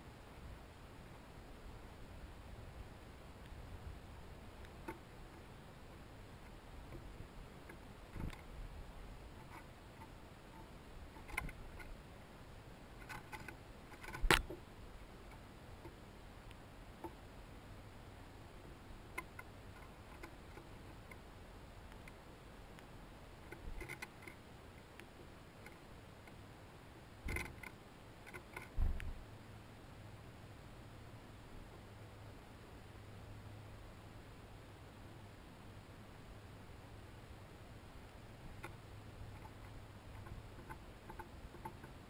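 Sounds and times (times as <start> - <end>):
faint steady hiss: 0.0 - 42.0
birds tapping on wooden feeder: 9.4 - 12.0, 12.9 - 16.0, 18.7 - 21.3, 23.4 - 26.4, 27.2 - 29.1, 38.6 - 42.0.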